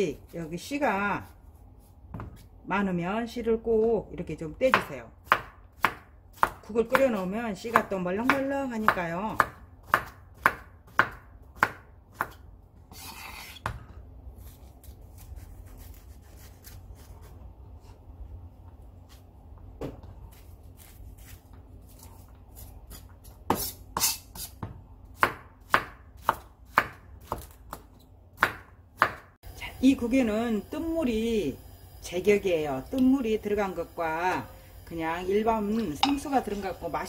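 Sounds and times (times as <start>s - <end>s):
knife chopping on wooden board: 2.1s - 2.5s, 4.7s - 7.1s, 7.7s - 12.4s, 22.6s - 29.3s
knife scraping board: 12.9s - 13.8s, 14.4s - 17.4s, 20.3s - 24.6s.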